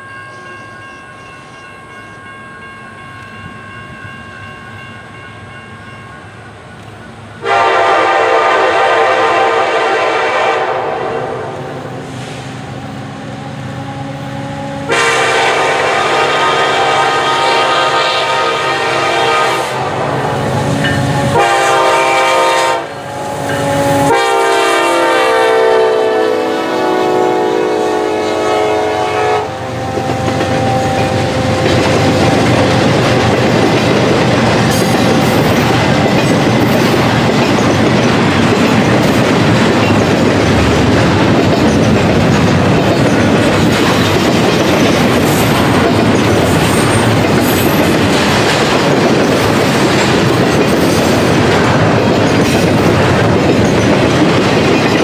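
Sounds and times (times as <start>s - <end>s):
train wheels rumbling on rails: 0.0s - 55.0s
locomotive air horn chord: 7.4s - 12.6s, 13.7s - 32.4s.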